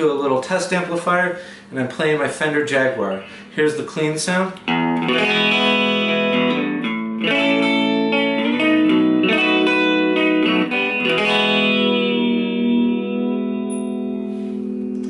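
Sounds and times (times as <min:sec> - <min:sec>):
clean electric guitar chords: 0:04.6 - 0:15.0.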